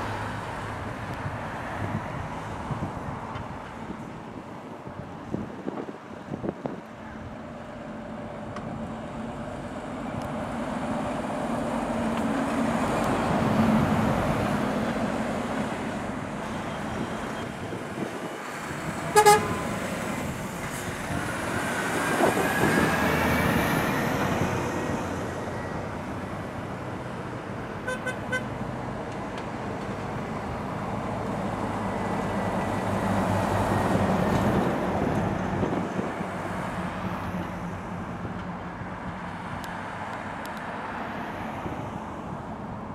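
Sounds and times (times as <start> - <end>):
diesel lorries driving past: 7.2 - 42.9
lorry horn toots: 19.1 - 19.7.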